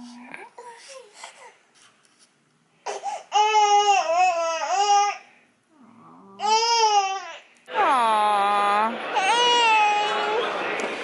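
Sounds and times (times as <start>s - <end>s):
baby crying: 2.9s - 5.2s, 6.4s - 7.4s, 9.2s - 10.3s.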